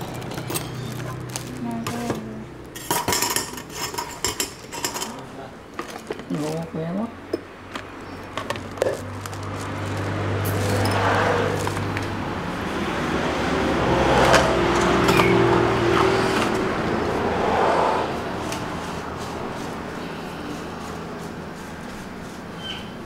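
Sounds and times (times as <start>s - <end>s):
vehicle engine passing by: 8.9s - 23.0s.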